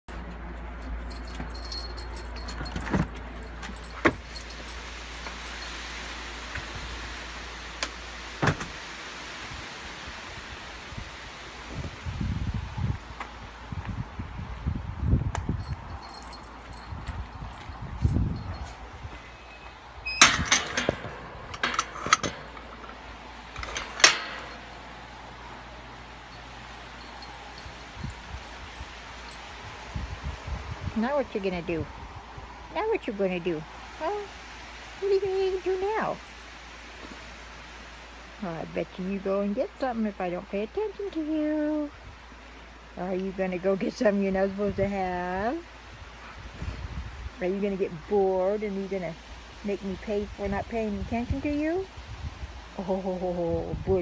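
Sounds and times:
small metal pieces jingling: 0:01.0 - 0:05.7, 0:15.6 - 0:18.8, 0:26.2 - 0:29.5
steady low rumble: 0:11.0 - 0:34.0
sharp clicks and rattling knocks: 0:20.2 - 0:24.9.

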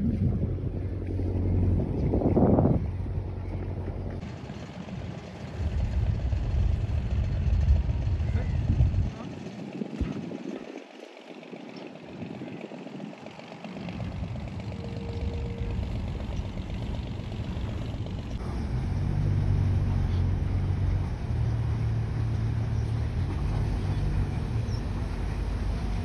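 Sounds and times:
boat engine droning: 0:00.0 - 0:26.0.

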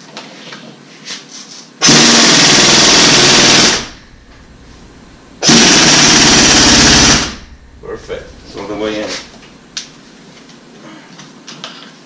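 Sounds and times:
pneumatic impact wrench hammering: 0:01.8 - 0:04.0, 0:05.4 - 0:07.5.

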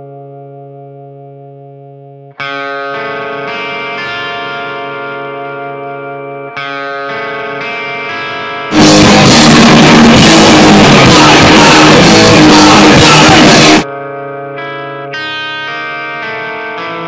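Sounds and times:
distorted guitar: 0:00.0 - 0:17.0
ringing guitar chords: 0:00.0 - 0:17.0
drum kit: 0:08.7 - 0:13.8.

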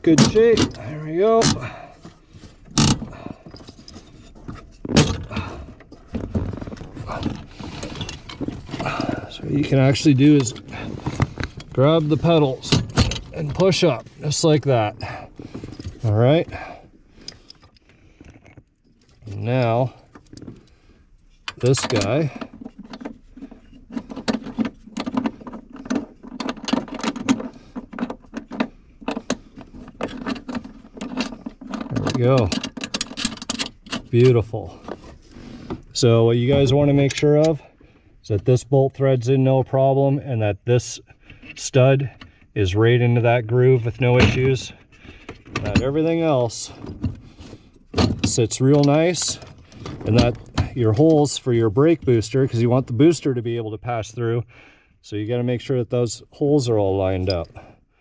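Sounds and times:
metal clunks and knocks: 0:00.0 - 0:01.9, 0:02.7 - 0:14.1, 0:44.0 - 0:47.2.

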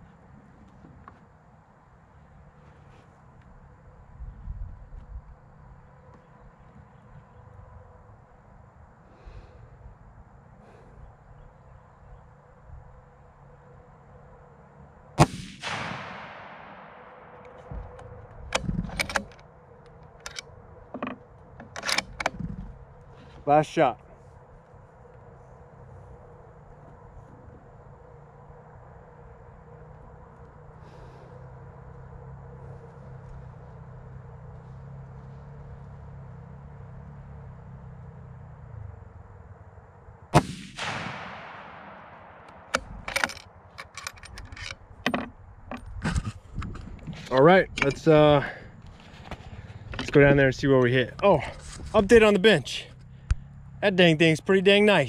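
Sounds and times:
rifle shot echoing: 0:15.2 - 0:17.9, 0:40.3 - 0:43.2
rifle bolt clicking and clacking: 0:18.5 - 0:19.4, 0:20.1 - 0:20.4, 0:21.0 - 0:22.5, 0:42.5 - 0:46.7.

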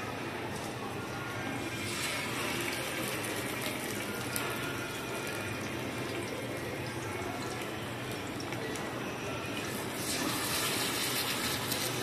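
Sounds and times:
fish sizzling in hot oil: 0:10.0 - 0:12.0.

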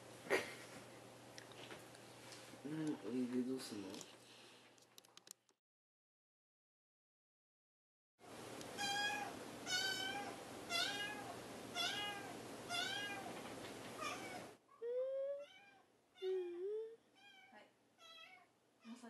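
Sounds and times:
kitten meowing: 0:08.8 - 0:13.3, 0:14.0 - 0:14.4.

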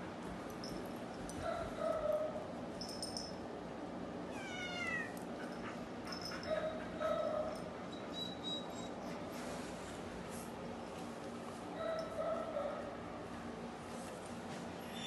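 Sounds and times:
cat meowing: 0:04.3 - 0:05.2.

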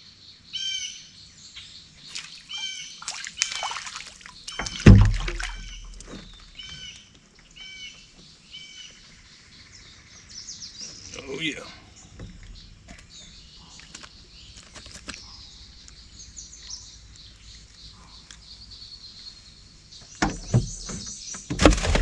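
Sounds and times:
bird calling: 0:00.5 - 0:21.5
water splashing: 0:02.0 - 0:07.6
loud low thump: 0:04.6 - 0:06.5.

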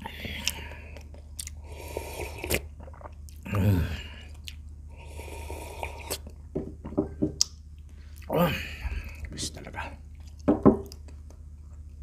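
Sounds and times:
man slurping broth: 0:01.6 - 0:02.7, 0:05.0 - 0:06.3.

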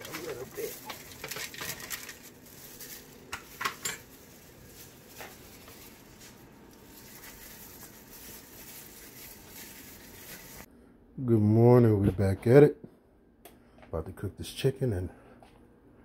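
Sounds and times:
foil and dishes handling: 0:00.0 - 0:10.7.

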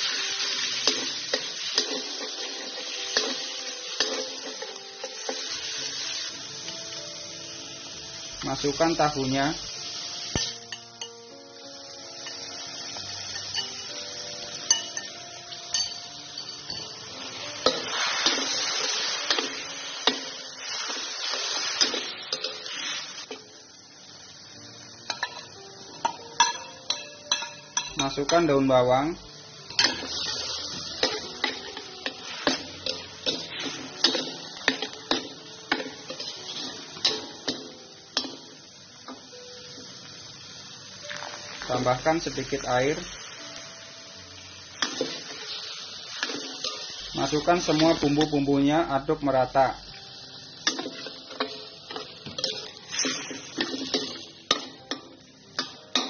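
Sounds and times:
food sizzling in oil: 0:00.0 - 0:56.0
metal spatula scraping wok: 0:50.6 - 0:55.0.

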